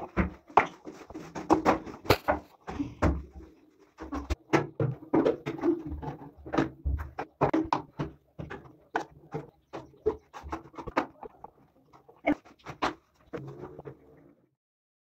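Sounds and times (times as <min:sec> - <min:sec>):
plastic bottles knocking on tile: 0:04.0 - 0:11.3.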